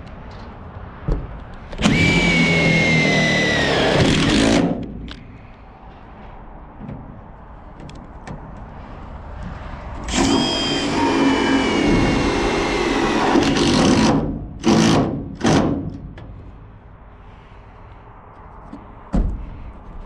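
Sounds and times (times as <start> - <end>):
impact driver whining: 1.8 - 4.8, 10.0 - 15.8.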